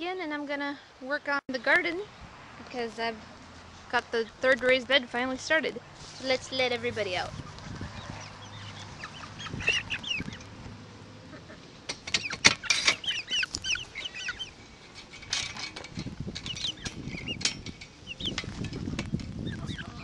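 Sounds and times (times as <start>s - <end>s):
chicks peeping: 6.0s - 20.0s
wire cage door rattling: 11.9s - 13.2s, 14.9s - 18.8s.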